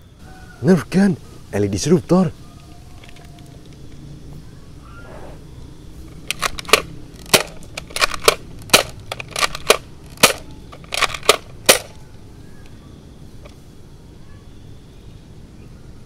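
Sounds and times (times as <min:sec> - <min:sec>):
toy blaster plastic clacks: 0:06.2 - 0:12.0.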